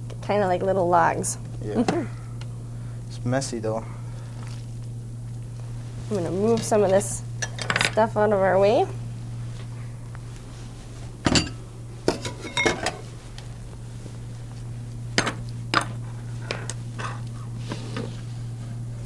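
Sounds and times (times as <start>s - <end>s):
dishes and utensils clattering: 11.3s - 13.0s.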